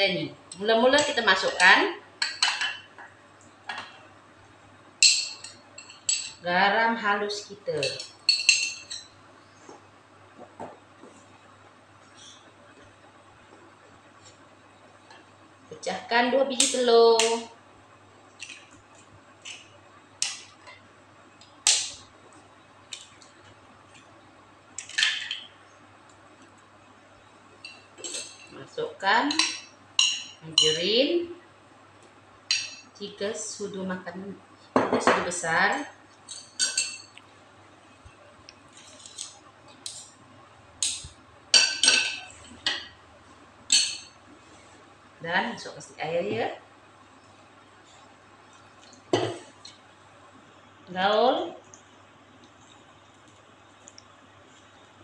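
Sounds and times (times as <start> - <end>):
spoons clinking against a bowl: 5.0 - 6.4, 7.8 - 9.1, 29.3 - 30.9, 32.5 - 32.9, 36.3 - 37.2, 43.7 - 44.2.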